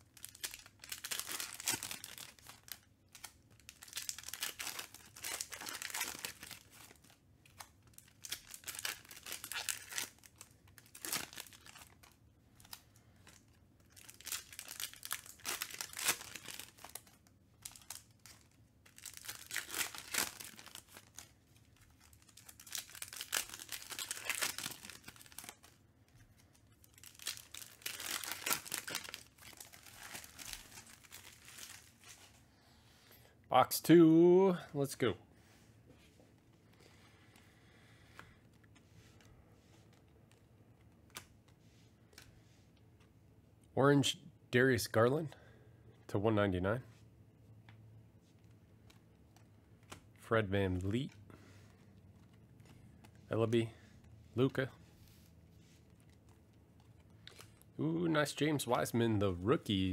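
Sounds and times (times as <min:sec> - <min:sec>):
foil wrappers tearing and crinkling: 0:00.0 - 0:12.8, 0:13.4 - 0:25.8, 0:26.4 - 0:32.2
cards being handled: 0:48.2 - 0:57.7.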